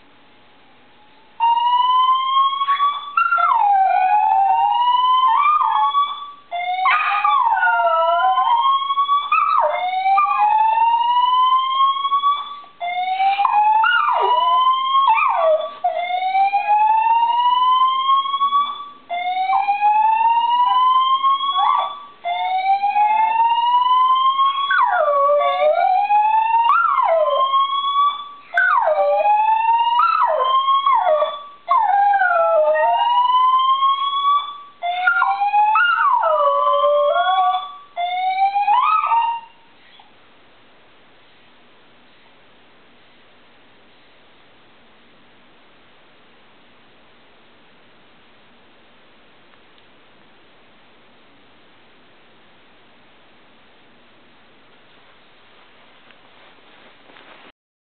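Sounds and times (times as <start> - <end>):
fire alarm rising whoop: 1.4 - 3.2, 32.2 - 39.5
dog howling: 6.8 - 11.2, 13.2 - 17.0, 19.5 - 24.0, 24.6 - 33.5, 34.9 - 37.7, 38.6 - 39.5.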